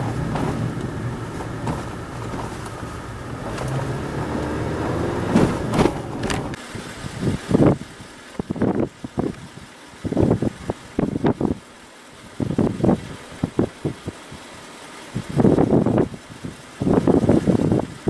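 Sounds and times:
loud bumps: 0.0 - 6.6
road traffic roar: 0.0 - 6.7.

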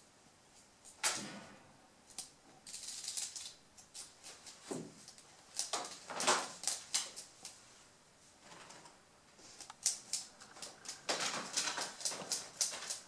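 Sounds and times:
rabbits nibbling wicker basket: 2.1 - 7.9, 8.6 - 13.0.

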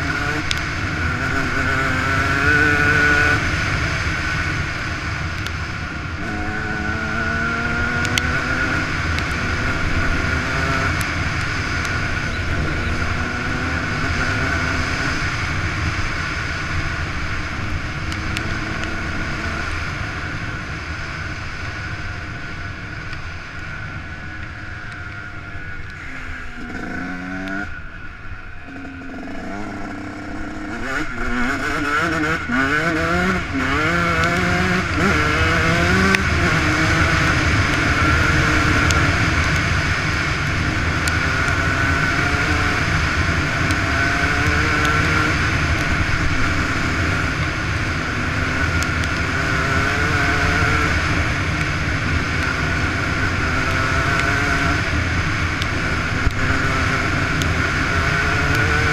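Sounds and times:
motocross engine accelerating: 25.5 - 27.8, 28.7 - 40.0.

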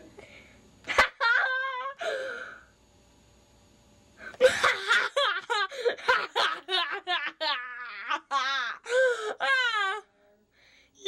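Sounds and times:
boy squealing with laughter: 0.9 - 2.0.

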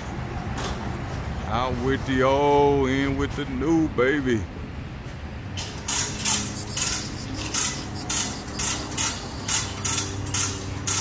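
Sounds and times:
hand tool scraping metal exhaust: 5.6 - 11.0.

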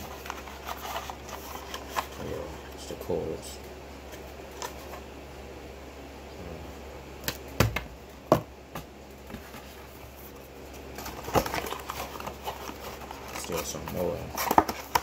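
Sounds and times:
steady low hum: 0.0 - 15.0
clicks and knocks of box handling: 11.0 - 15.0.

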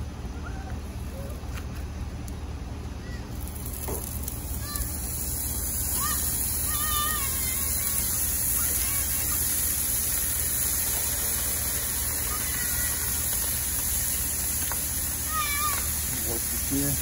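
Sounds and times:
low hum: 0.0 - 17.0
steaks sizzling on a griddle: 3.5 - 17.0.

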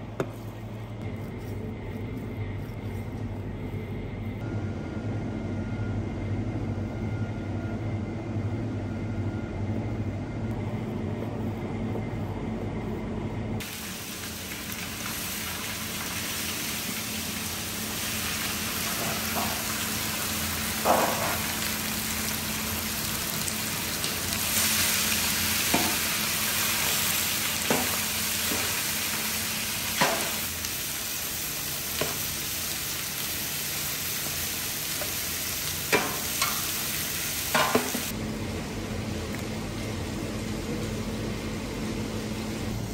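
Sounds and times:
steady low hum: 0.0 - 13.8, 35.5 - 42.9
fat sizzling in a pot: 13.6 - 38.1.

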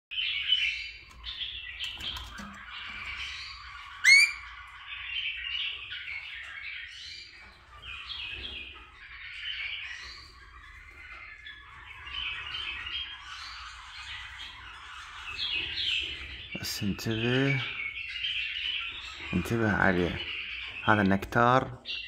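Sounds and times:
loud rising bird call: 4.0 - 4.4
parrot squawks and chirps: 4.0 - 4.6.

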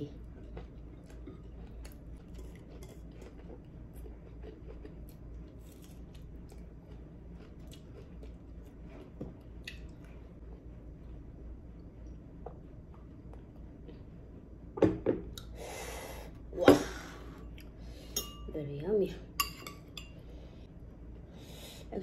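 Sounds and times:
steady low hum: 0.0 - 22.0
person chewing: 0.2 - 10.7.

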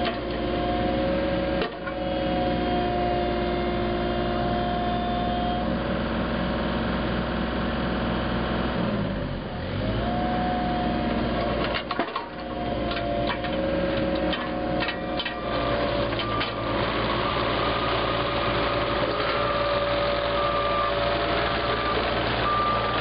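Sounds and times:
excavator diesel engine running: 0.0 - 23.0
clicks and clanks: 11.5 - 15.4.

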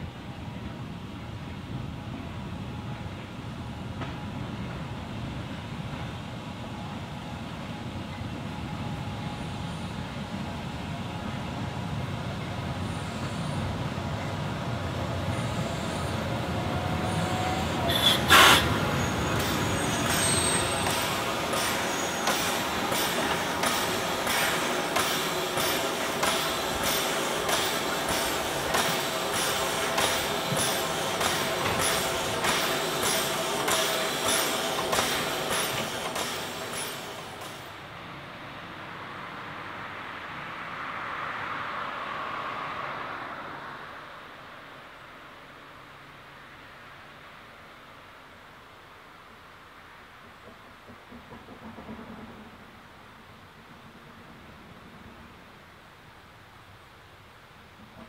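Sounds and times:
steam locomotive chuffing: 12.7 - 37.8
steam hissing: 15.0 - 37.8
loud short steam burst: 17.0 - 37.8.

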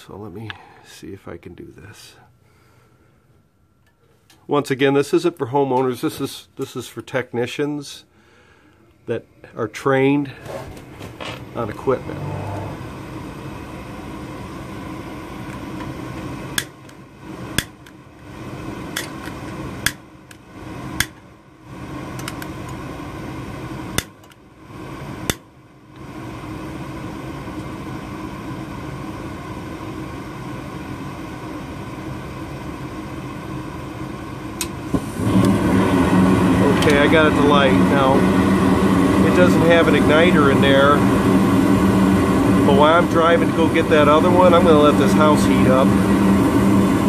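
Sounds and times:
furnace humming: 0.0 - 47.0
gas burners igniting: 9.8 - 47.0.

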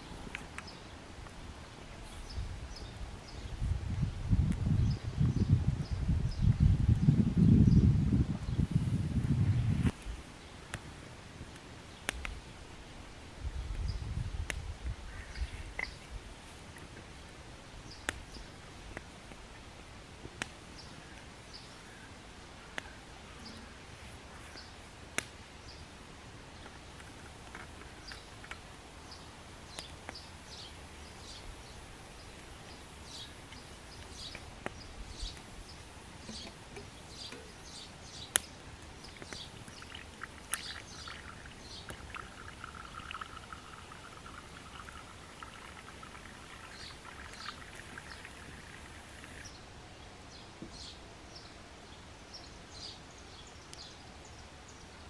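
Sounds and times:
campfire crackling: 9.8 - 13.4, 15.7 - 31.1, 31.8 - 49.6
sizzling hiss: 29.6 - 49.6.

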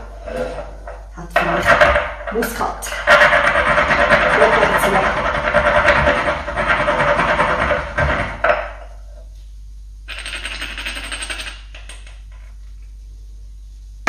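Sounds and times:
nutmeg grated on metal grater: 1.4 - 8.4.

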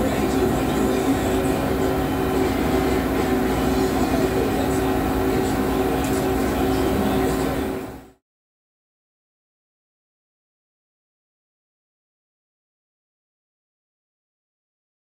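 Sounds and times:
machinery hum: 0.0 - 8.2.

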